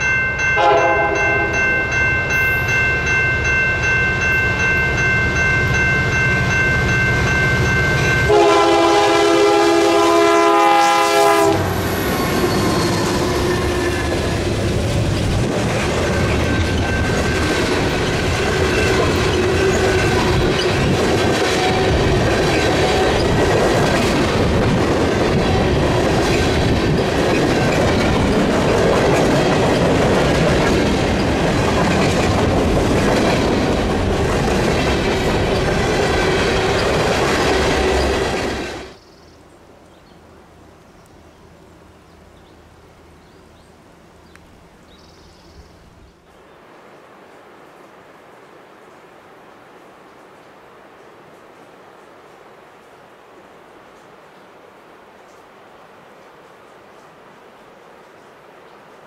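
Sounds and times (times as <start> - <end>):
train cars rumbling on rails: 0.0 - 39.0
diesel locomotive horn: 0.6 - 1.6, 8.2 - 14.4.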